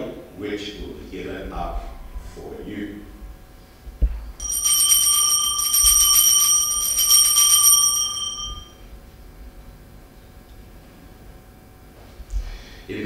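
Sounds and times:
altar bells ringing: 0:04.4 - 0:08.8.

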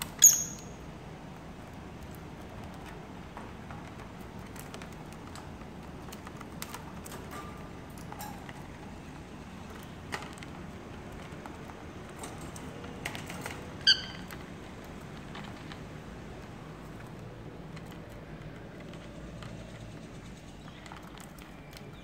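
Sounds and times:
bird chirp: 0:00.1 - 0:00.8, 0:13.8 - 0:14.3, 0:19.5 - 0:22.0.

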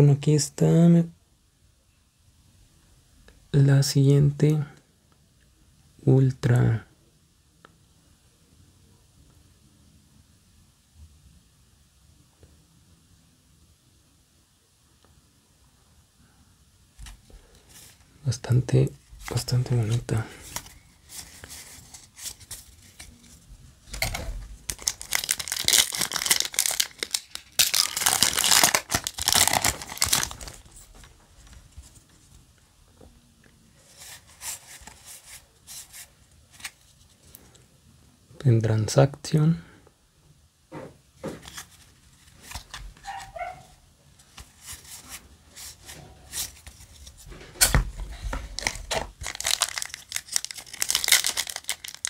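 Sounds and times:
cards being handled: 0:19.1 - 0:32.4, 0:33.8 - 0:37.3, 0:41.2 - 0:43.6, 0:44.2 - 0:52.0
foil wrapper tearing and crinkling: 0:23.9 - 0:30.7, 0:48.6 - 0:52.0.

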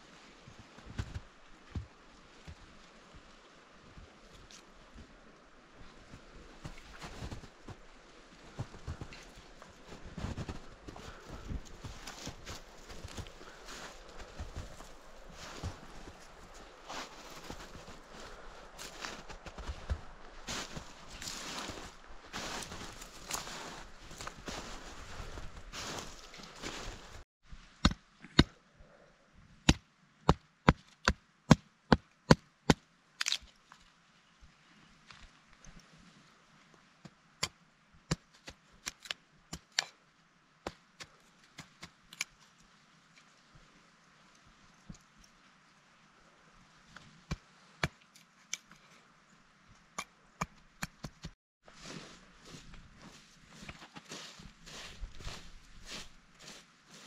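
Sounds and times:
rustling crunching noise: 0:08.5 - 0:27.2, 0:51.6 - 0:57.0.

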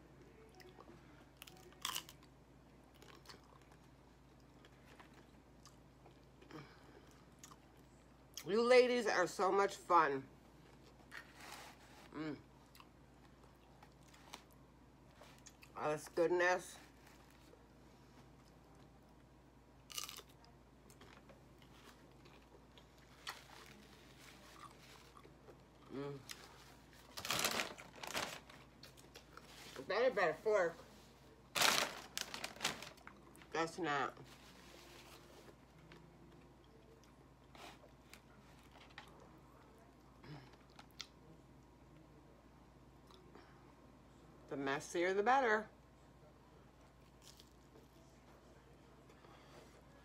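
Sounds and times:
faint chewing: 0:00.2 - 0:08.5, 0:10.6 - 0:15.8, 0:16.9 - 0:27.1, 0:28.6 - 0:29.8, 0:46.8 - 0:49.8
tortilla chip crunch: 0:01.4 - 0:06.7, 0:19.8 - 0:29.5, 0:31.5 - 0:33.4.

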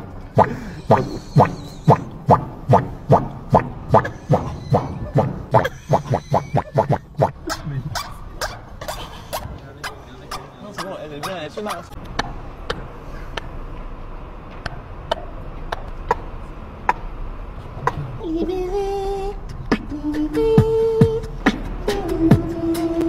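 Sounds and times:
hummed melody: 0:00.4 - 0:07.6, 0:17.9 - 0:23.0
person beatboxing: 0:00.4 - 0:12.0, 0:17.8 - 0:18.1, 0:19.5 - 0:23.0.

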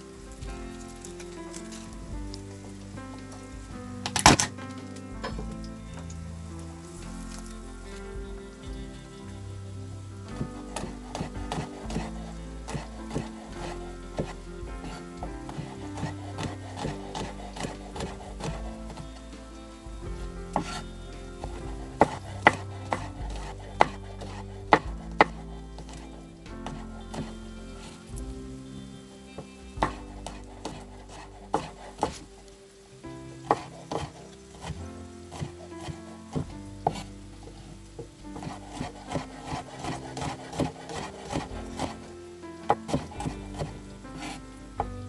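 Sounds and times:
knife chopping on wooden board: 0:10.4 - 0:19.0, 0:21.4 - 0:26.0, 0:26.6 - 0:27.3, 0:29.8 - 0:32.3, 0:33.4 - 0:37.1, 0:38.4 - 0:42.1, 0:42.7 - 0:44.4.

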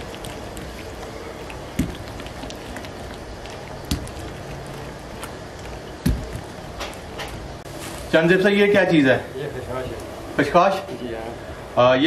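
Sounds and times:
hand smearing egg on dough: 0:00.0 - 0:07.5
steady background hiss: 0:00.0 - 0:12.0
dull thud: 0:06.0 - 0:06.6.

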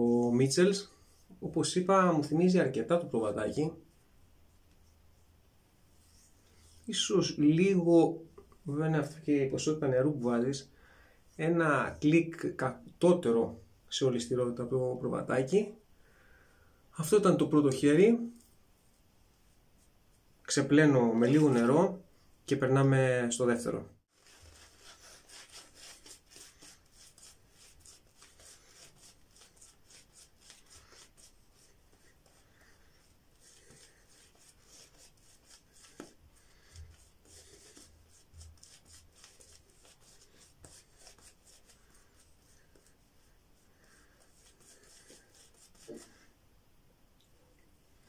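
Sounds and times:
shaving brush strokes on face: 0:24.1 - 0:46.3.

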